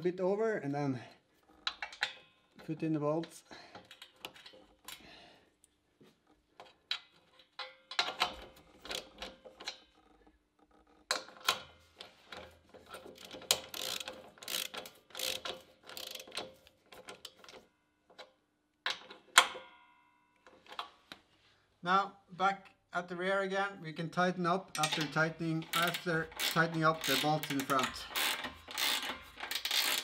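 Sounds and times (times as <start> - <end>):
ratchet wrench clicking: 12.9 - 17.6, 24.8 - 30.0.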